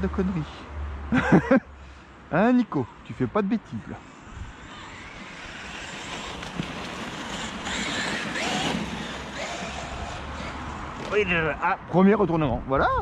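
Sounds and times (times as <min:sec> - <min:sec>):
toy truck motor and tyres on sand: 0:02.8 - 0:11.6.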